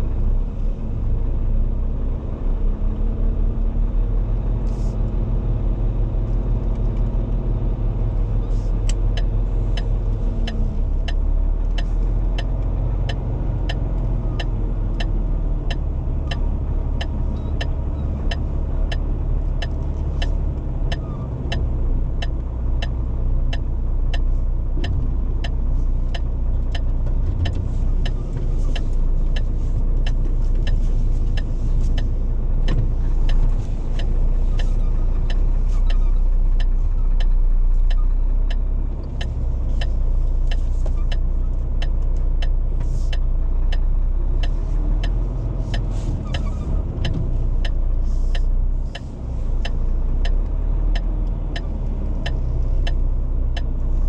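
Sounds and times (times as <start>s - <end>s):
lorry engine and road rumble: 0.0s - 54.0s
regular sharp ticking: 12.4s - 53.8s.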